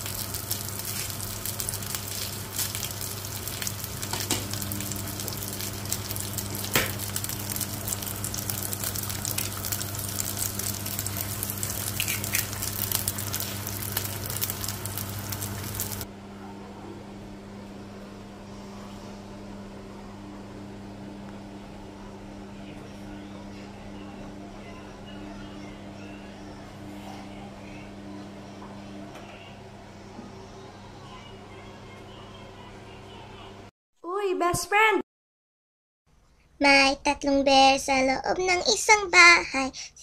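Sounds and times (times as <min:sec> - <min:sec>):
food sizzling in oil: 0:00.0 - 0:16.0
low steady hum: 0:00.0 - 0:33.7.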